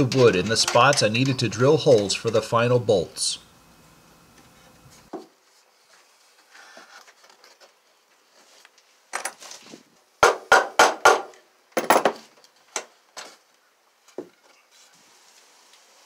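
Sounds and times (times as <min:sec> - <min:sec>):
hammer striking wood: 0:10.2 - 0:12.2.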